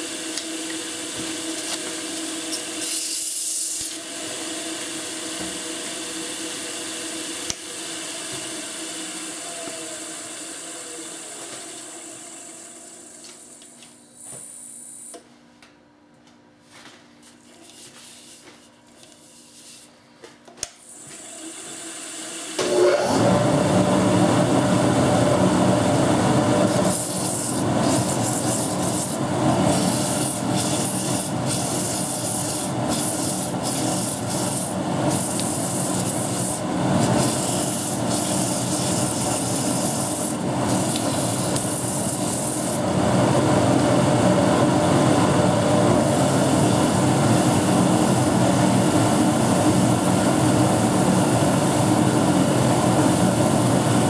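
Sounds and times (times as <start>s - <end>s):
wood lathe starting: 21.2s - 43.2s
sanding hiss on spinning wood: 26.6s - 42.9s, 46.0s - 54.0s.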